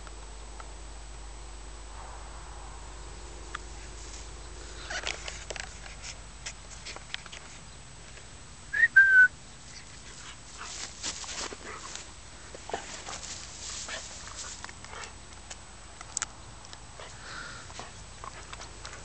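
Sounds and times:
grass rustling: 0:00.0 - 0:19.0
person whistling: 0:08.7 - 0:09.3.

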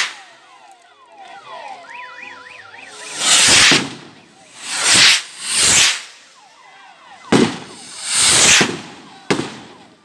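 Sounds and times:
skyrockets hissing: 0:03.0 - 0:03.8, 0:04.6 - 0:06.2, 0:07.8 - 0:08.6
firework bang: 0:03.0 - 0:06.1, 0:07.3 - 0:09.8.

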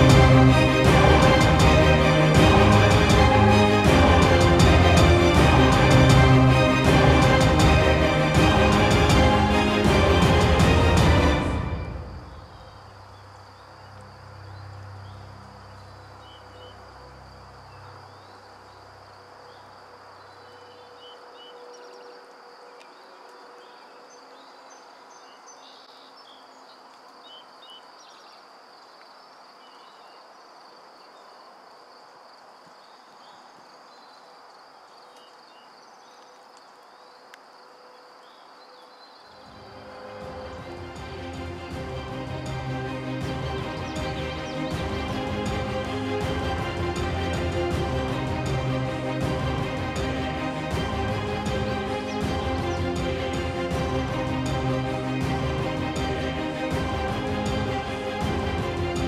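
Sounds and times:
low rumble: 0:00.0 - 0:13.1
insect chorus drone: 0:00.0 - 0:59.0
bird chirps: 0:17.6 - 0:28.5.

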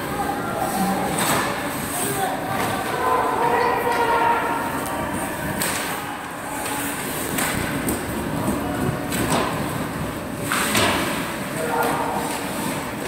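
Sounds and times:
sharp clacks of hockey sticks: 0:05.6 - 0:06.0, 0:06.6 - 0:08.0, 0:10.4 - 0:12.9.

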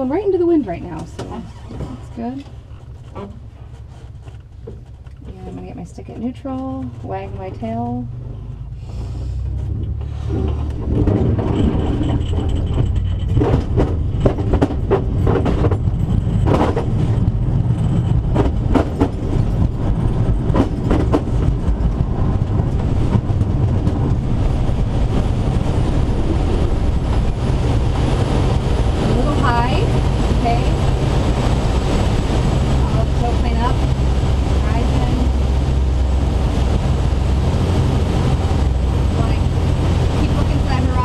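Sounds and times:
wheel rumbling over asphalt: 0:00.0 - 0:41.0
wheel knocking over cracks: 0:10.3 - 0:17.0.

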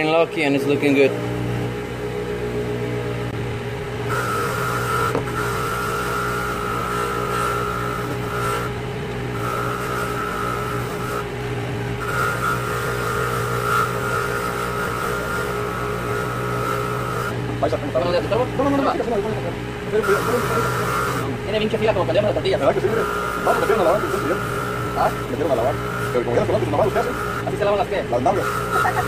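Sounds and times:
bench grinder motor humming: 0:00.0 - 0:29.0
grinding against wheel: 0:03.1 - 0:29.0.

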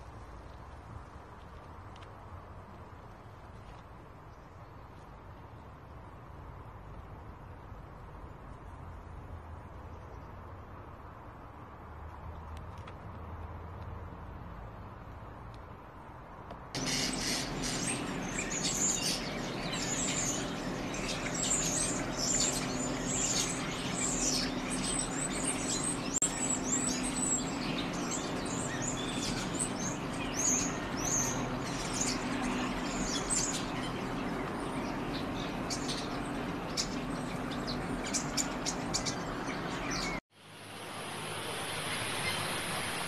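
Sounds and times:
starlings chattering: 0:16.8 - 0:40.2
steady low hum: 0:16.8 - 0:43.0.

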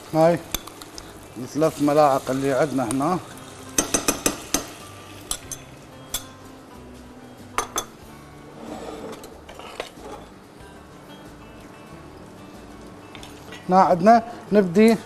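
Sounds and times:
spoon clinking against dishes: 0:03.8 - 0:06.4, 0:07.6 - 0:08.0.

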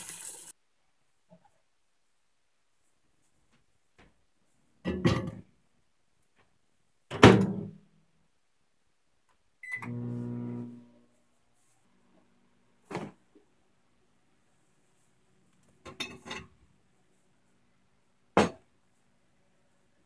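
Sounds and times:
microwave humming: 0:09.7 - 0:10.9.

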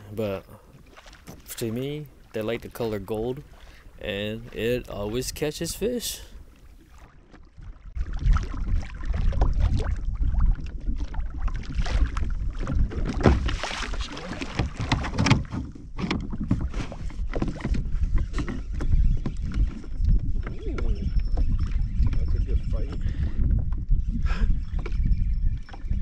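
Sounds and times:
wind rumbling on microphone: 0:01.2 - 0:26.0
water slapping against kayak hull: 0:06.4 - 0:23.9.

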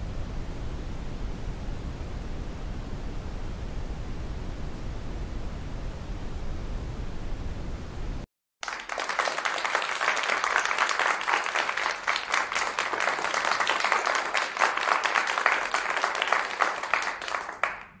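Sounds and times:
audience applause: 0:08.6 - 0:18.0.

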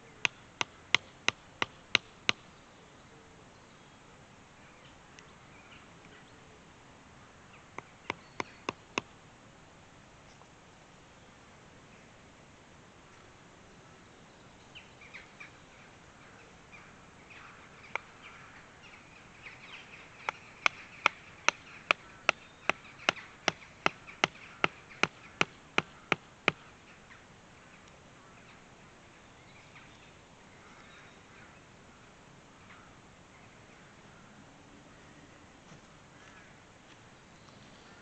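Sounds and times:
faint bird calls: 0:00.0 - 0:09.1, 0:13.2 - 0:38.0
hatchet striking wood: 0:08.1 - 0:09.1, 0:20.6 - 0:26.6.

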